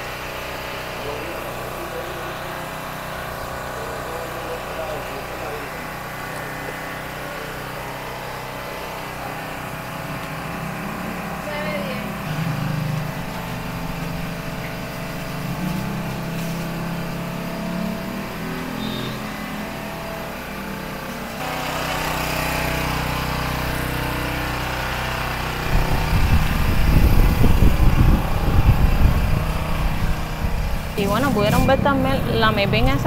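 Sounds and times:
shop background hum: 0.0s - 33.0s
street traffic: 0.0s - 33.0s
loud uneven low rumble: 24.7s - 33.0s.

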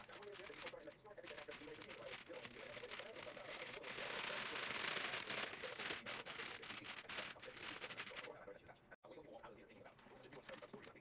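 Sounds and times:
plastic food pouch crinkling and tearing: 0.0s - 8.3s.

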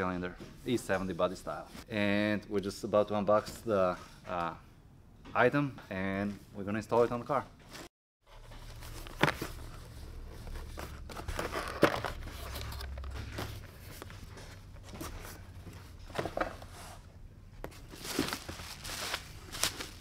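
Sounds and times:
cardboard and packing rustling: 7.7s - 20.0s
bubble wrap crinkling: 17.8s - 20.0s.

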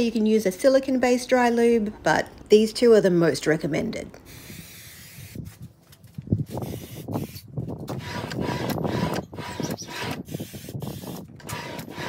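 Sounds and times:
aerosol can spraying: 4.3s - 5.5s, 6.5s - 7.5s, 10.4s - 11.2s
saw rubbing and sliding: 6.6s - 12.0s.

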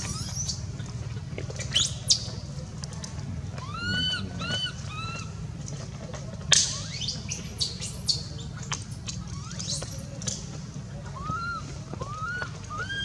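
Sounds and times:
whistle-like animal calls: 3.6s - 5.3s, 9.0s - 10.1s, 11.1s - 13.0s.

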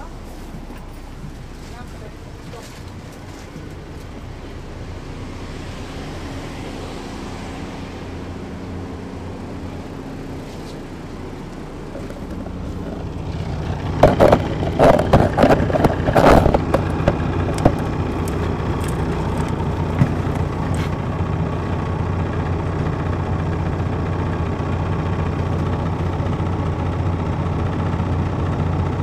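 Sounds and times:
bus engine running: 0.0s - 29.0s
loud irregular knocks and rattles: 11.9s - 21.0s.

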